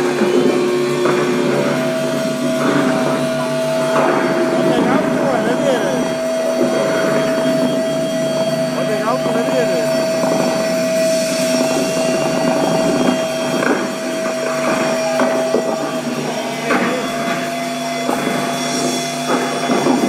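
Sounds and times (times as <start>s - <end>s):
steady droning note: 0.0s - 20.0s
crowd cheering and shouting: 14.1s - 16.9s.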